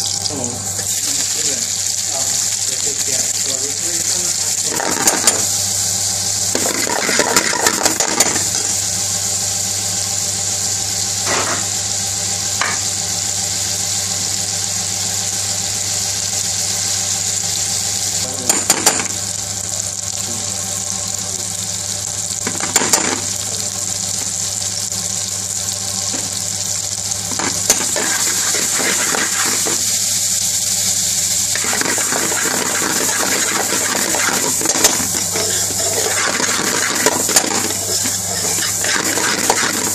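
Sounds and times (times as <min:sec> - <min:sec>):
prawns sizzling in oil: 0:00.0 - 0:39.9
metal ladle scraping pan: 0:31.6 - 0:39.9.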